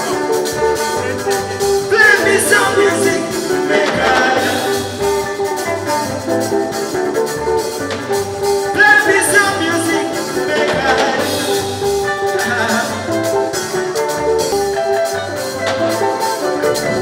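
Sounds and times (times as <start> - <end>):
person singing: 0.0 - 5.4, 8.7 - 14.0
live band playing highlife: 0.0 - 17.0.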